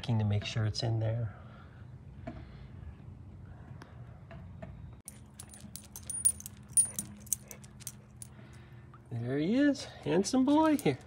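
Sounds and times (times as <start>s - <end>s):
low steady hum: 1.3s - 11.0s
dog tags jingling: 5.1s - 8.4s, 10.6s - 11.0s.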